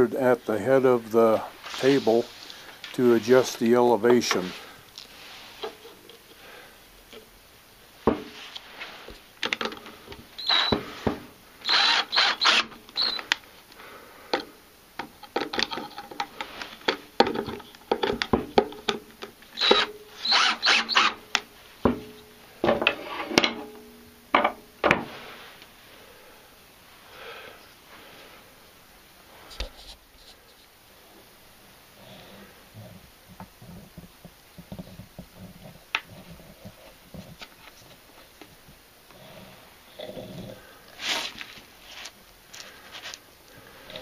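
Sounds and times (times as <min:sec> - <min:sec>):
short scrapes: 0:41.0 - 0:42.1.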